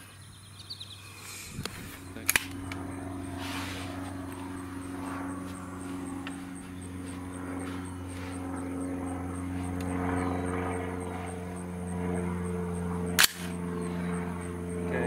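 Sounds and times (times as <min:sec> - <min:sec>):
steady engine drone: 0:00.0 - 0:15.0
rifle shot: 0:13.2 - 0:13.6.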